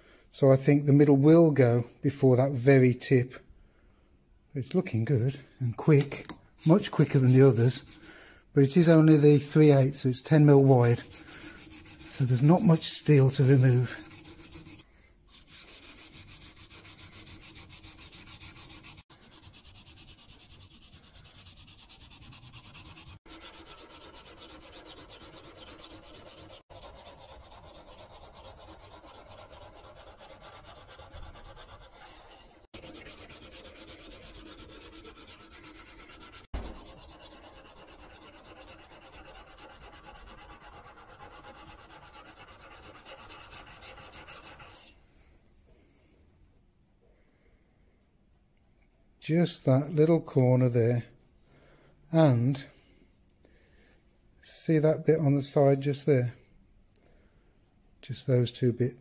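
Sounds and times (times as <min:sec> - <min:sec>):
chisel rasping on diamond plate: 0:10.8 - 0:44.9.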